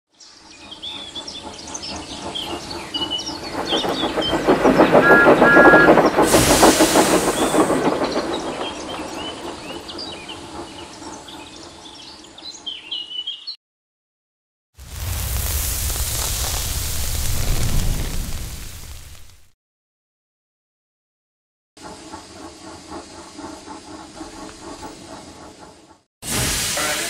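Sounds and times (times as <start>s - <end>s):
train wheels clattering on rails: 0.5s - 12.7s, 21.8s - 26.1s
train whistle toots: 5.0s - 6.8s, 26.3s - 27.0s
steam hiss: 5.6s - 8.4s, 14.8s - 19.4s, 26.2s - 27.0s.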